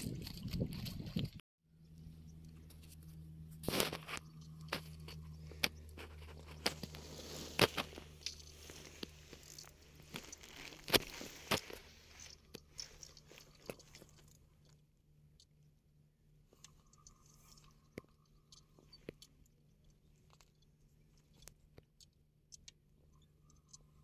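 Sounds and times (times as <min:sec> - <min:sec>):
steady low hum: 0:00.0 - 0:24.0
crunches and sharp clicks: 0:02.4 - 0:15.6.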